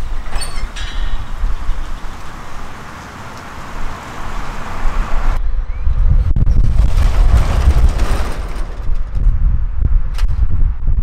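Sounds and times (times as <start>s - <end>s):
wind rumble on microphone: 0.0s - 2.7s, 3.8s - 11.0s
pickup truck driving off: 0.0s - 5.4s.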